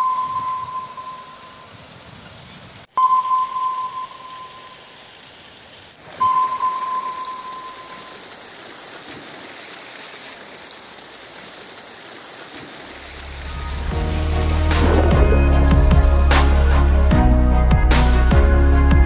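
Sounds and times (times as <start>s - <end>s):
clear ringing tone: 0.0s - 1.7s, 3.0s - 5.0s, 6.2s - 8.2s
river water rushing: 3.6s - 17.0s
low bass hum: 13.1s - 19.0s.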